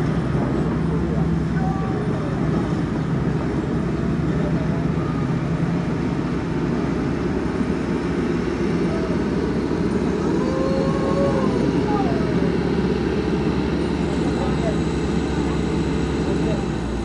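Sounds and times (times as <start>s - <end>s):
diesel engine droning: 0.0s - 17.0s.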